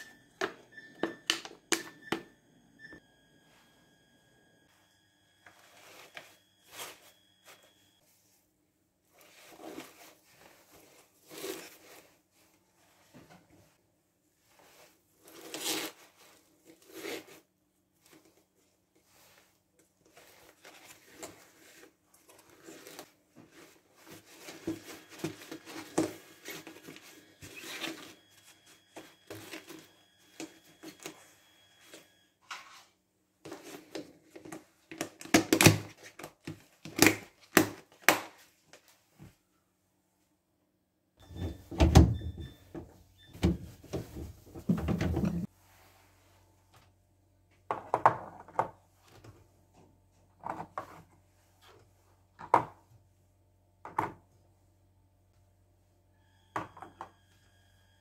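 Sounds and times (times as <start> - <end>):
plastic containers rustling: 43.4 - 45.5.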